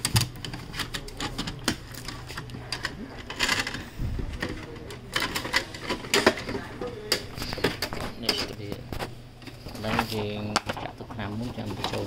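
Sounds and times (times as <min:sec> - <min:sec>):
plastic parts clicking: 0:00.0 - 0:12.0.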